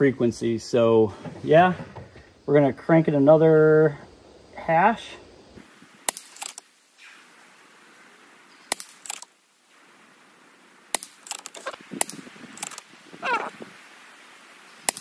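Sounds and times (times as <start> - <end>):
air rifle shots muffled crack: 6.0 - 6.7, 8.7 - 9.3, 10.9 - 12.9.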